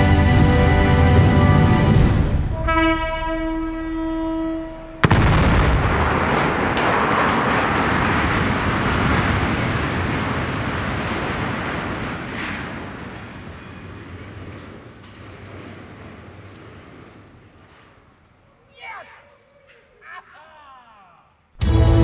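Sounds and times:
rumbling crash of structure collapsing: 5.0s - 16.9s.

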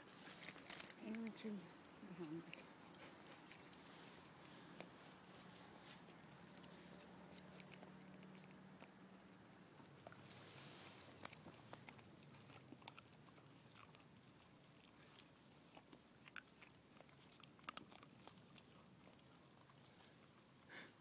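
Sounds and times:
dog licking and chewing: 0.0s - 20.8s.

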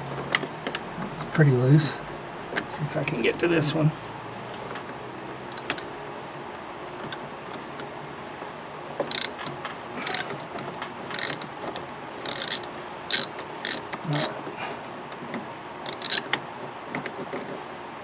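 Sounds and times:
hand ratchet clicking: 5.5s - 5.9s, 9.0s - 14.3s, 15.8s - 16.4s.

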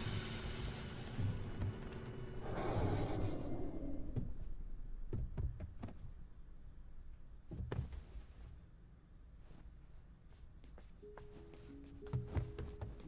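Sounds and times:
soft knocks and thuds: 5.1s - 6.2s, 7.4s - 8.4s.

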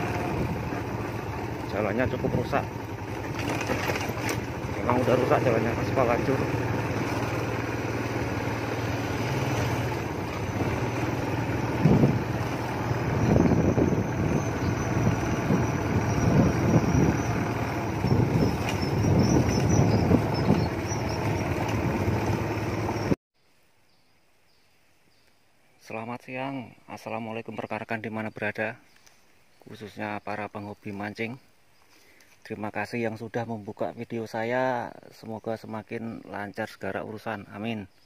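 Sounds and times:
wind gusting over microphone: 0.0s - 7.5s, 8.3s - 23.2s
motorcycle engine cruising: 0.0s - 23.2s.

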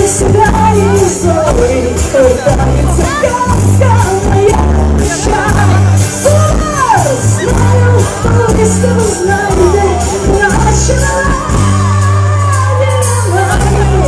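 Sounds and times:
heavy bass line: 0.0s - 14.0s
live pop music over loudspeakers: 0.0s - 14.0s.

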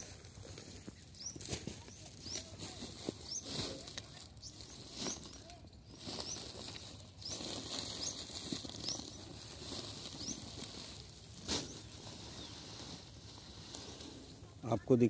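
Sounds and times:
plastic sack rustling: 0.0s - 14.6s
small birds chirping: 0.0s - 15.0s.

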